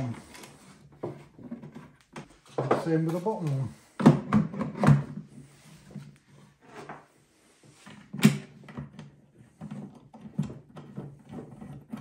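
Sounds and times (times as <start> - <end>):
plastic knocks and clunks: 0.9 - 5.3.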